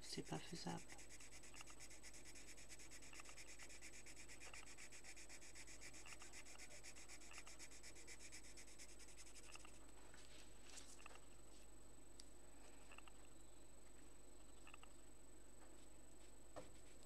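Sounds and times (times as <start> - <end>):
pencil scribbling on paper: 0.0 - 9.8.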